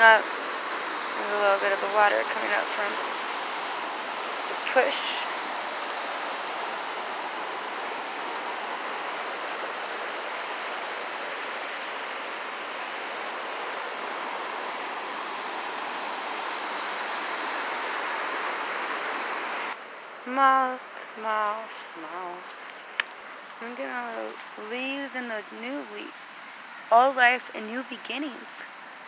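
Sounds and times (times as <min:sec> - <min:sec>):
white water rushing: 0:00.0 - 0:27.1.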